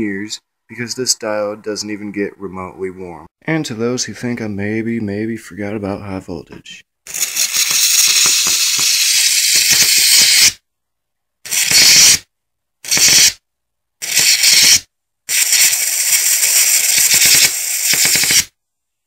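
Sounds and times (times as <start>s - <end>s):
electric arc hissing: 7.1s - 10.6s, 11.5s - 12.2s, 12.8s - 13.4s, 14.0s - 18.5s.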